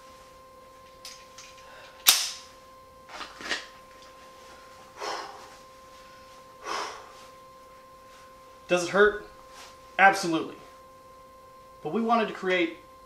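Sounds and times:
man breathing heavily: 4.6s - 7.4s.

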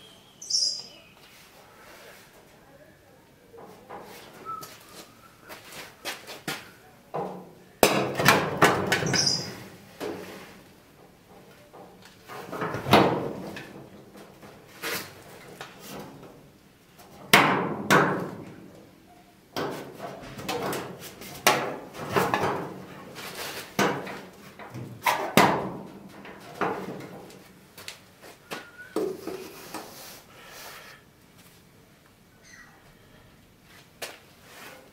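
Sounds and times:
metallic knocks on sheet metal: 17.3s - 18.3s.

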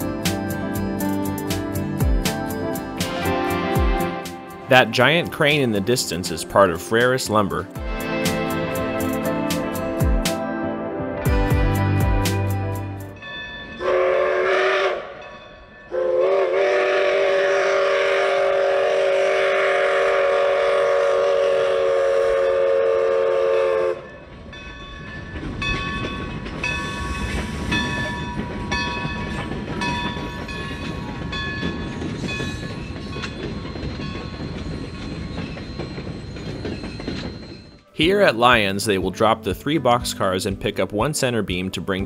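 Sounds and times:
bell ringing: 13.0s - 13.9s, 24.1s - 38.6s
steam locomotive whistle: 13.8s - 15.2s, 15.9s - 24.2s
freight cars rolling on rails: 24.0s - 38.6s.

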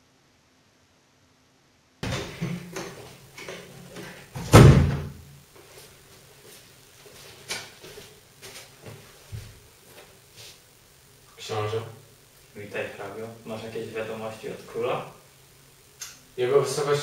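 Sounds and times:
door shutting with thump: 2.0s - 3.0s, 4.4s - 5.2s
footsteps on hard floor: 5.6s - 10.6s.

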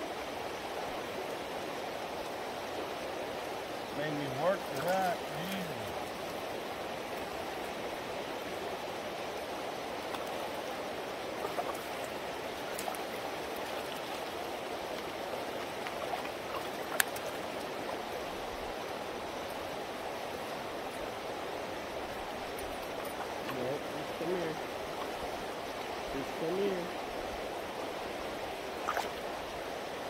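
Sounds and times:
river water rushing: 0.0s - 30.0s
light ticks: 16.9s - 17.3s.

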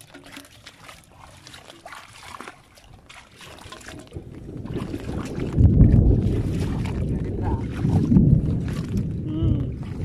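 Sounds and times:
water splashing and dripping: 0.0s - 10.0s
wind rumble on microphone: 2.9s - 10.0s.

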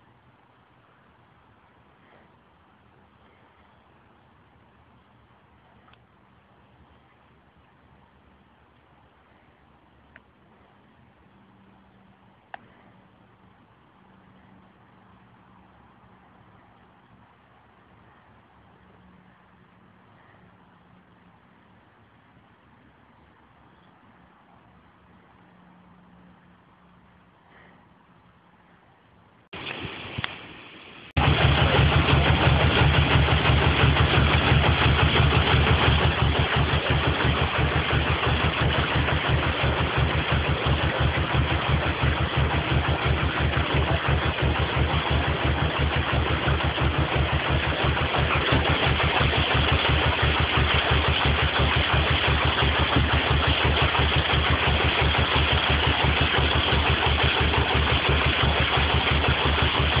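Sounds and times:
diesel engine running: 29.5s - 60.0s.

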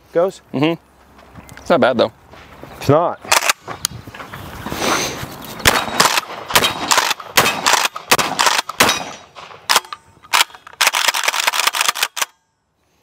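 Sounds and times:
shotgun shots: 5.6s - 12.3s.

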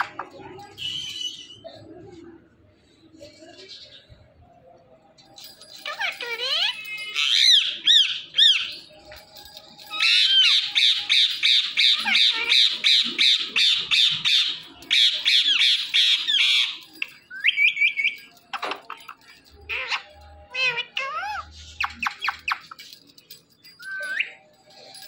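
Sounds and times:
parakeet screeching: 5.8s - 8.7s, 19.7s - 22.3s.

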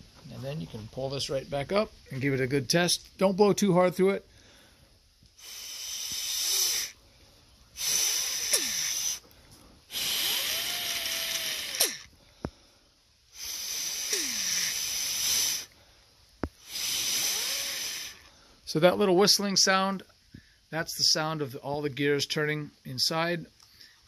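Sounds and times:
breath puffs blown through port: 4.4s - 12.7s, 13.3s - 18.5s
gears whistling: 10.0s - 12.1s.

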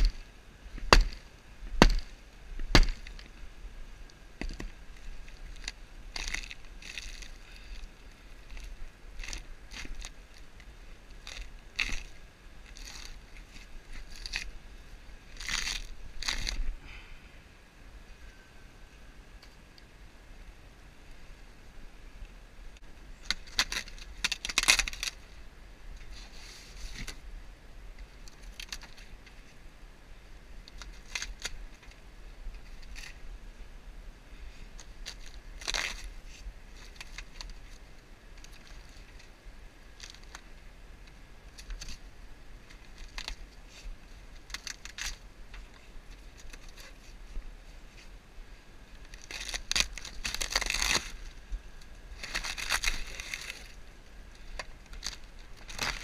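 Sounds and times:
wood cracking and snapping: 0.8s - 1.2s, 1.8s - 3.3s, 4.4s - 7.8s, 11.2s - 13.2s, 15.4s - 16.7s, 23.2s - 25.2s, 44.4s - 45.2s, 49.0s - 51.2s, 52.2s - 53.8s, 54.5s - 56.0s.

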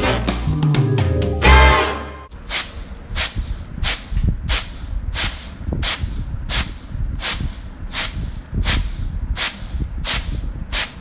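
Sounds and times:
grain rattling in winnowing tray: 2.4s - 11.0s.

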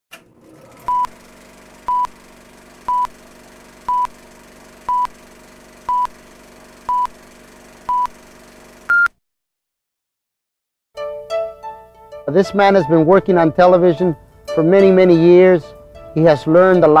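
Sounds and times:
countdown beeps: 1.9s - 2.1s, 2.9s - 3.2s, 3.9s - 4.2s, 4.9s - 5.2s, 5.9s - 6.2s, 6.9s - 7.1s, 7.9s - 8.1s.

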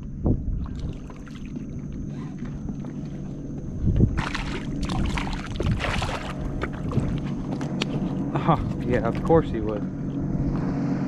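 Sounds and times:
low rumble: 0.0s - 11.0s
fish splashing at water surface: 4.1s - 7.1s.

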